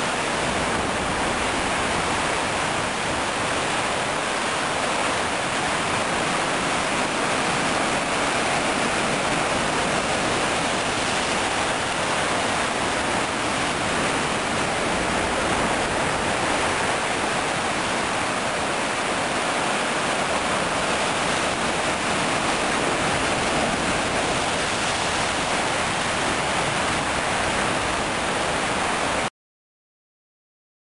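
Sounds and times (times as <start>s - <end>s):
sea surf over rocks: 0.0s - 29.3s.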